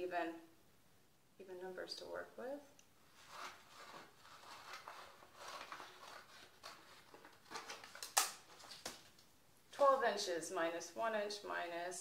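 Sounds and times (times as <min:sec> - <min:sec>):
paper rustling: 0:03.1 - 0:10.0.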